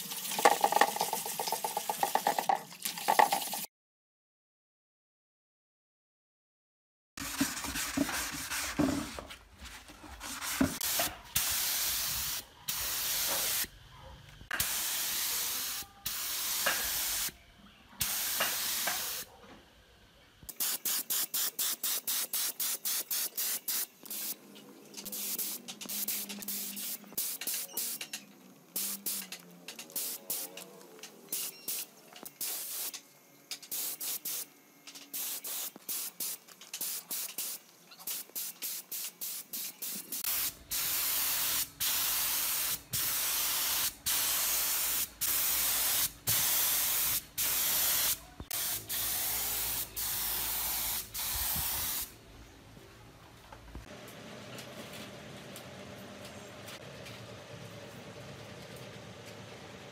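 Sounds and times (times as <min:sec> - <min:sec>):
spray gun hissing bursts: 0:10.8 - 0:13.7, 0:14.6 - 0:17.3, 0:18.0 - 0:19.3, 0:20.5 - 0:24.4, 0:25.1 - 0:28.0, 0:28.8 - 0:30.6, 0:31.3 - 0:33.0, 0:33.7 - 0:34.5, 0:35.1 - 0:52.1.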